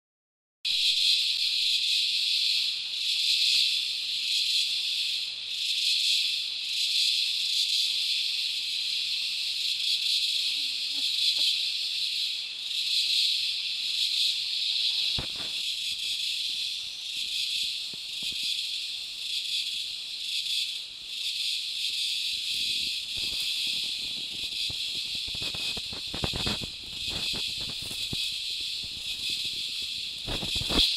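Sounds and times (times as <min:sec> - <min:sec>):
insect chorus shrill hiss: 0:00.7 - 0:30.9.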